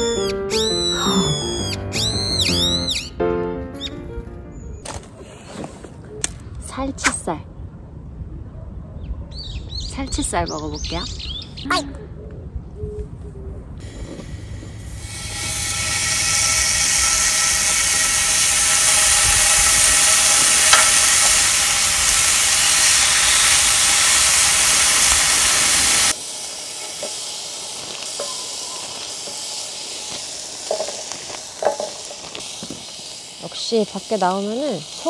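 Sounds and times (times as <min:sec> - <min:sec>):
beef sizzling on griddle pan: 0:14.2 - 0:35.0.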